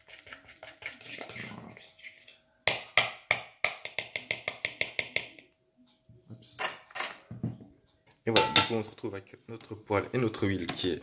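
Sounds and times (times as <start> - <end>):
fork beating batter in a bowl: 0.0 - 5.6.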